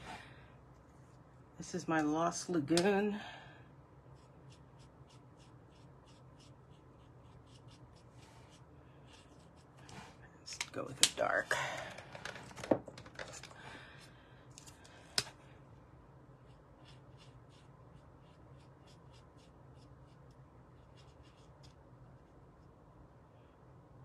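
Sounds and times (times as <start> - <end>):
brush dabbing ink on card: 4.2 - 9.7, 16.4 - 21.8.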